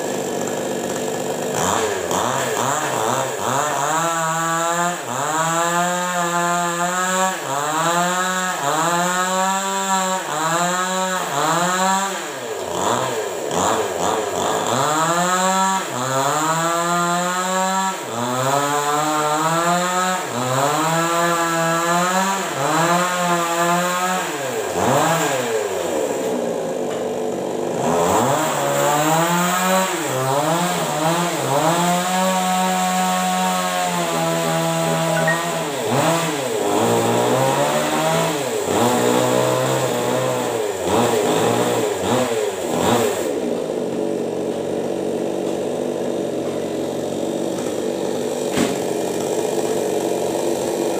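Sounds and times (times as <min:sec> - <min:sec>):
chainsaw revving while cutting: 0:00.0 - 0:50.9.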